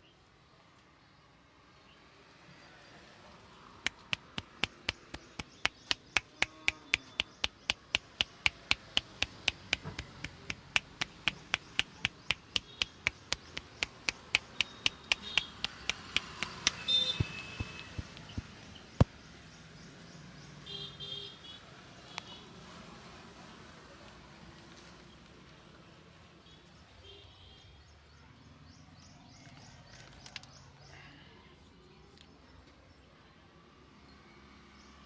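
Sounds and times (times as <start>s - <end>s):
hands tapping on head: 3.9s - 18.6s.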